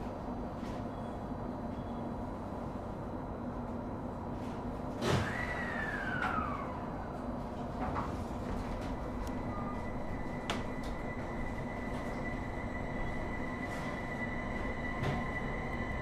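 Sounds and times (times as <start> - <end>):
electric train high whine: 5.2 - 16.0.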